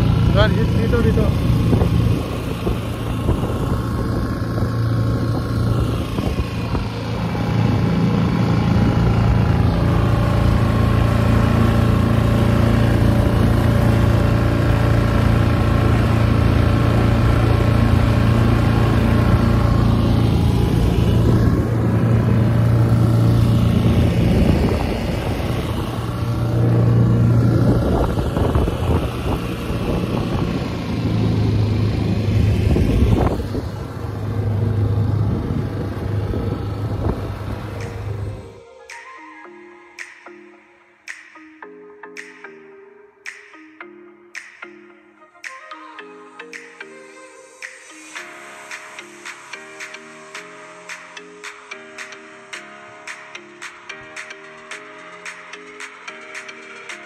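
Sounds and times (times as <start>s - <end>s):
outboard motor running: 0.0s - 38.6s.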